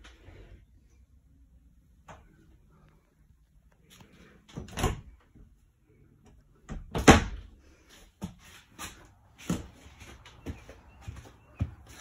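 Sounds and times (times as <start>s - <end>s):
door opening and shutting: 4.5s - 5.2s.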